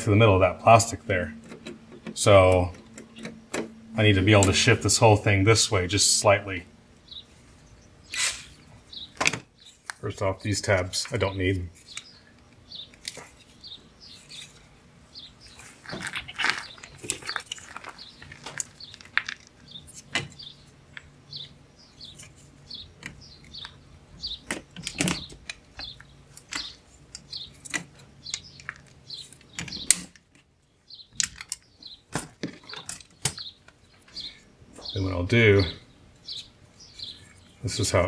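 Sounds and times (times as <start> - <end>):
plastic squeaking: 15.5 - 20.4.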